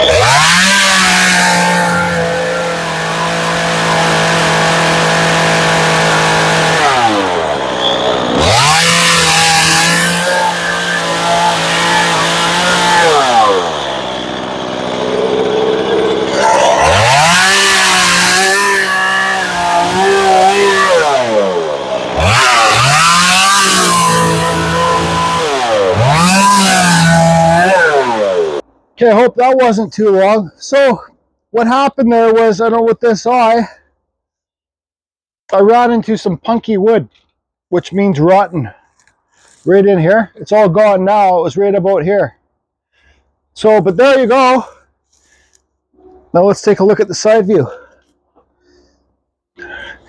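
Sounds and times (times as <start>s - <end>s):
chainsaw cutting wood: 0.0s - 28.7s, 38.7s - 39.7s, 43.8s - 46.4s, 47.2s - 48.9s.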